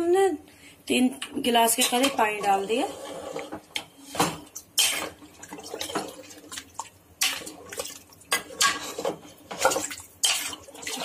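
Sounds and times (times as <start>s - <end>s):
liquid sloshing: 4.4s - 11.0s.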